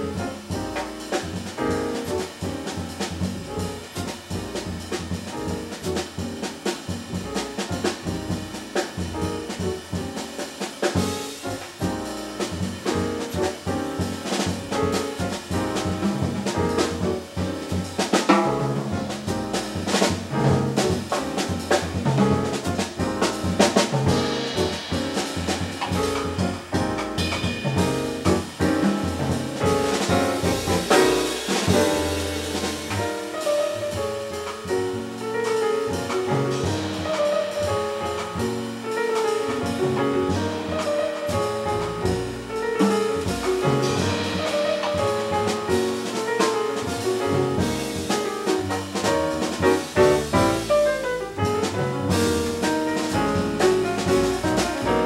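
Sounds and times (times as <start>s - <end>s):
double bass: 0.0s - 55.0s
drum kit with cymbals: 0.0s - 55.0s
jazz piano: 0.0s - 55.0s.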